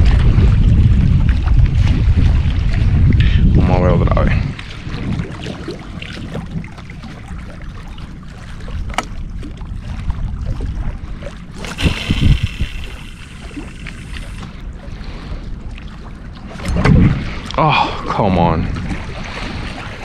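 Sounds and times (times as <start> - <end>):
wind on microphone: 0.0 - 20.0
rushing hiss: 11.8 - 14.4.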